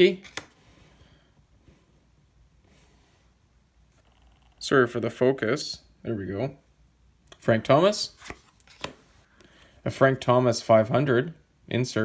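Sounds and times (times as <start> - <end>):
trading cards rustling: 8.1 - 9.2.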